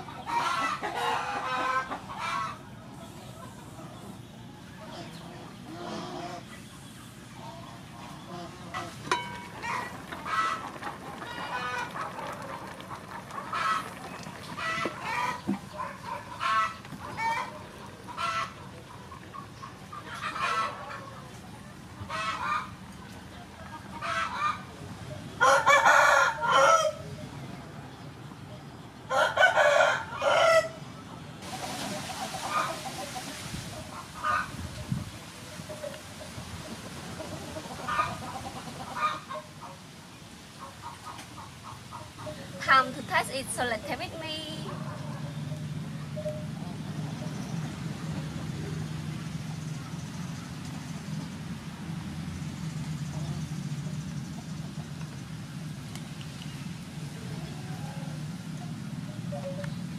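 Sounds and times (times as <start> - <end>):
rooster crowing: 25.4 - 27.0, 29.1 - 30.8
low engine-like hum: 41.4 - 59.9.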